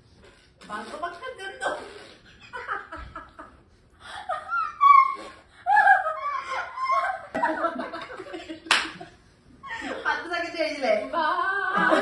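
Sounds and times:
people giggling: 2.3s - 3.6s, 4.3s - 10.2s, 11.7s - 12.0s.

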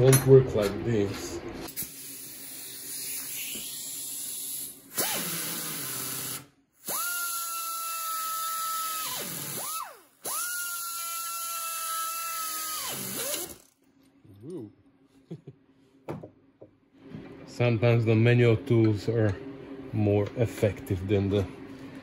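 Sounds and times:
pneumatic tool whining: 1.7s - 13.8s.

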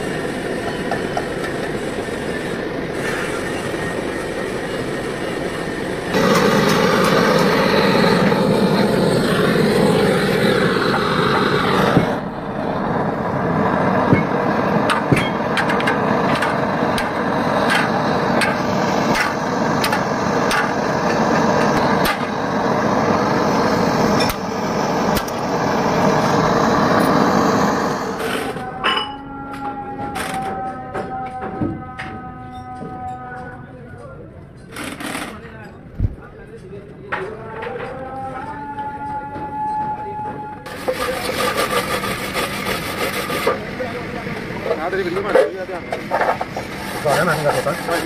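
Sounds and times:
steady roaring noise: 0.0s - 30.6s, 40.6s - 48.0s.

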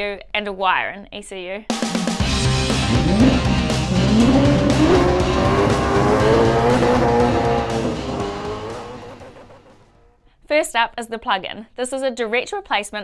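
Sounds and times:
racing car engine revving: 2.5s - 10.1s.

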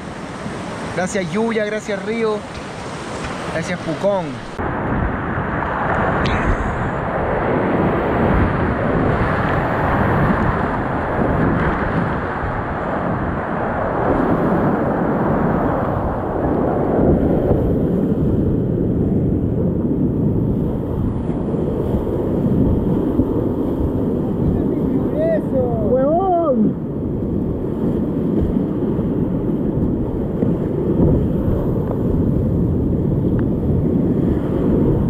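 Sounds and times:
whitewater rapids roaring: 0.0s - 4.7s.

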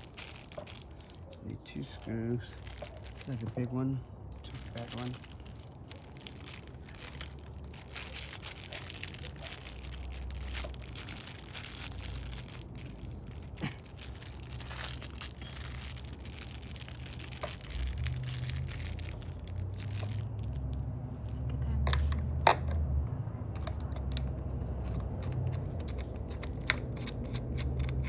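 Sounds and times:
plastic bag crinkling: 0.0s - 20.8s.

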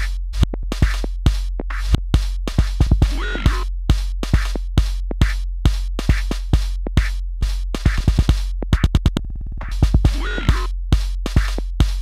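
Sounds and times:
deep bass: 0.0s - 2.2s, 6.9s - 11.0s
drum machine beat: 0.0s - 12.0s.

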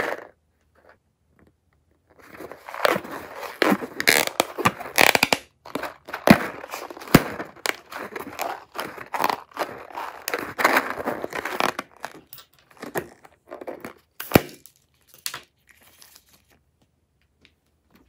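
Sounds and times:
rubbery rustle: 2.0s - 14.1s
crunchy slime balloon squeezed: 2.6s - 12.2s.

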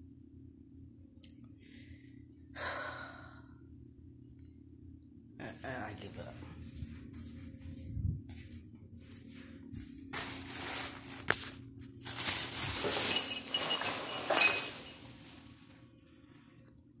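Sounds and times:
plastic bag crinkling: 10.1s - 15.8s.

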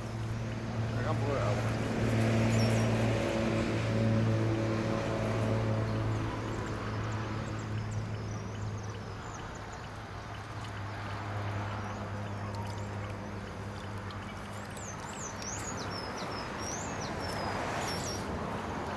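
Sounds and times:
low motor hum: 0.0s - 17.6s
small birds chirping: 6.4s - 18.9s.

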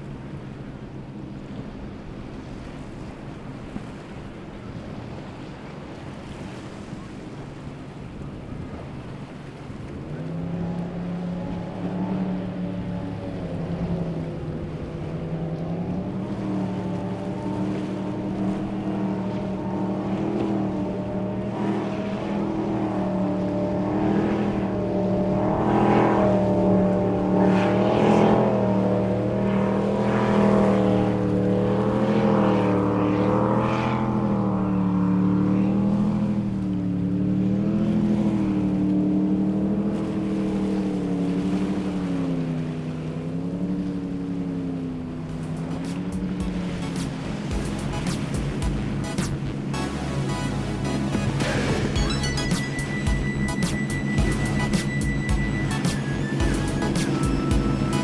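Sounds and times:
hull and spray slapping water: 0.0s - 58.0s
powerboat engines running: 0.0s - 58.0s.

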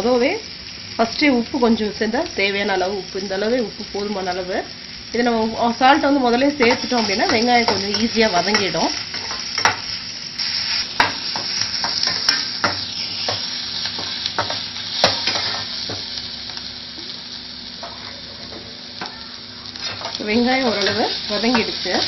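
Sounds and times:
onions sizzling in oil: 0.0s - 22.0s.

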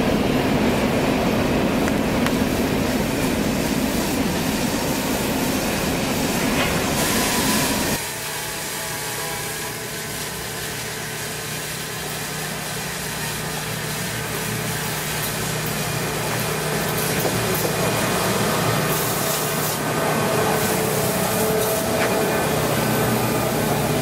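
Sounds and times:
diesel engine hum: 19.8s - 24.0s.

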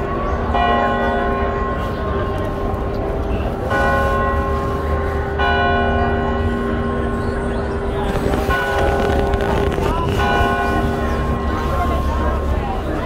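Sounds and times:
steady low rumble: 6.7s - 13.0s.

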